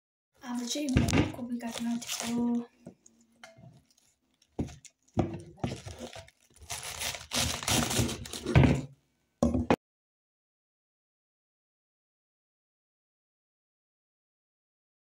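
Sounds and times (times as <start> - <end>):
cabbage leaves tearing and crunching: 0.4 - 2.8, 3.8 - 8.8.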